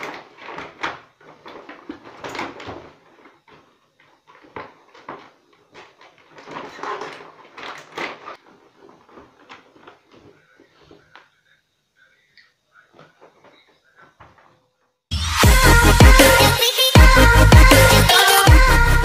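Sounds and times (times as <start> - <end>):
plastic packaging crinkling: 0.0 - 11.2.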